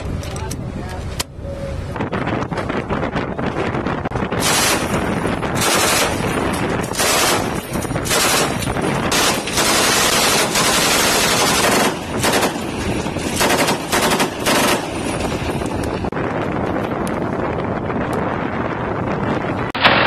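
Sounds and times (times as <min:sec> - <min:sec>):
machine gun bursts: 0:04.4 - 0:15.3.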